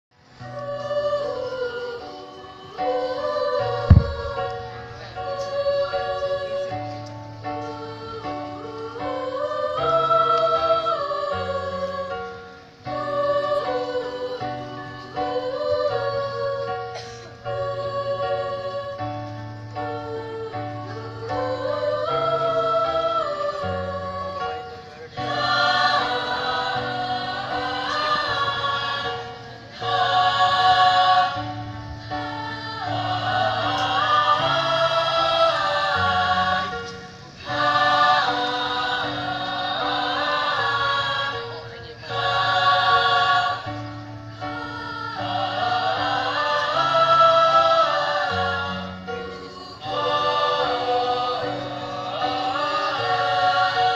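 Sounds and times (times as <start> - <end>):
choir singing a hymn: 0.2 - 53.9
sustained low accompaniment: 2.9 - 9.2.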